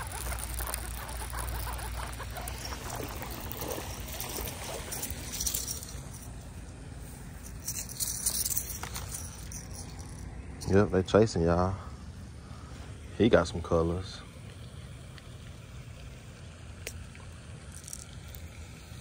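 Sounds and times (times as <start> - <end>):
fishing reel cranking: 0.0 - 6.3, 7.5 - 10.8
fish splashing: 0.0 - 6.6, 14.3 - 19.0
handling rustles: 0.0 - 10.8.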